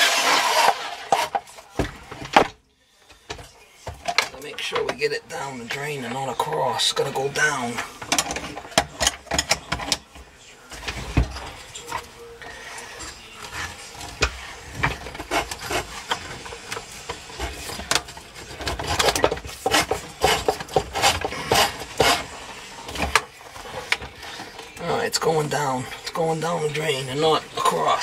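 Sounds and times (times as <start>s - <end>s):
drain snake scraping in pipe: 0.0s - 1.6s, 10.9s - 25.3s.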